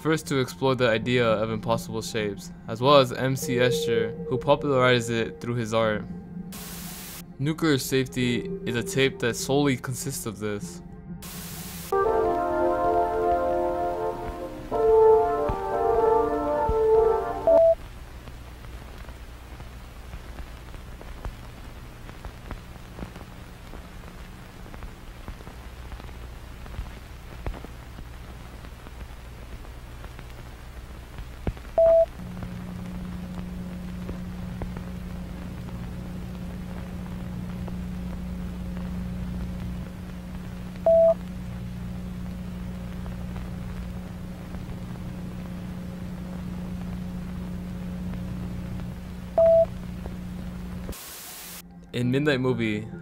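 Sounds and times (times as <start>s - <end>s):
tape hum with crackles: 0.0s - 53.0s
low drone: 2.4s - 17.8s.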